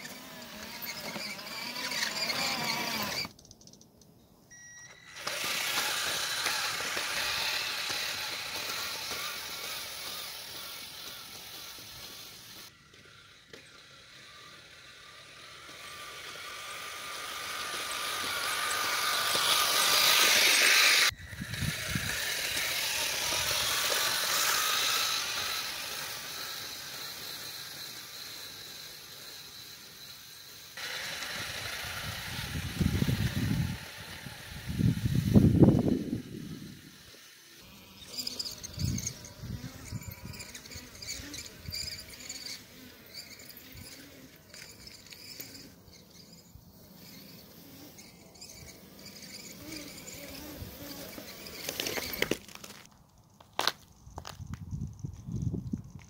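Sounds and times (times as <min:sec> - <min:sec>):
small electric motors whining: 0:00.0 - 0:03.9, 0:04.5 - 0:56.0
tracks churning snow: 0:05.3 - 0:13.1, 0:14.0 - 0:30.1.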